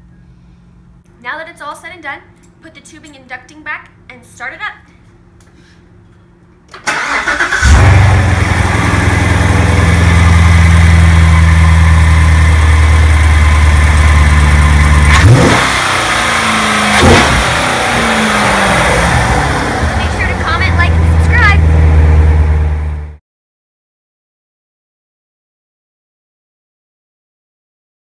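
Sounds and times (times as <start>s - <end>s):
car engine idling: 6.9s - 23.2s.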